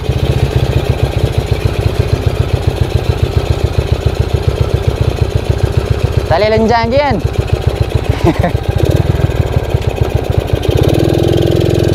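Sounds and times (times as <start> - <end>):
motorcycle engine running at low revs: 0.0 - 11.9.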